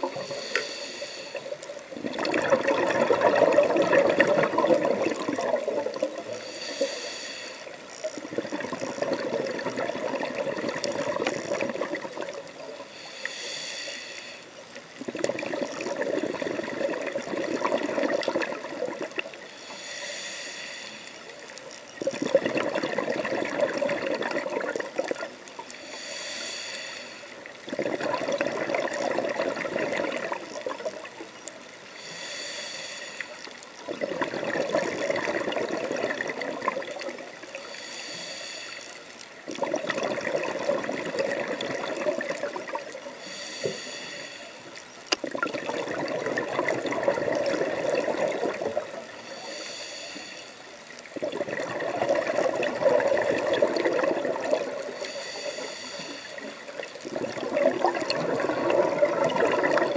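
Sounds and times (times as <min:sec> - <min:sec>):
hissing regulator inhale: 0:00.0 - 0:01.9, 0:06.0 - 0:08.2, 0:12.7 - 0:14.8, 0:19.3 - 0:21.8, 0:25.5 - 0:27.6, 0:31.1 - 0:33.8, 0:37.4 - 0:39.3, 0:43.1 - 0:44.9, 0:49.0 - 0:51.0, 0:54.6 - 0:57.1
exhaled bubbles underwater: 0:01.3 - 0:06.8, 0:08.0 - 0:12.9, 0:15.0 - 0:19.5, 0:22.0 - 0:25.6, 0:27.4 - 0:31.5, 0:33.8 - 0:37.7, 0:39.4 - 0:43.2, 0:44.8 - 0:49.3, 0:50.9 - 0:59.9.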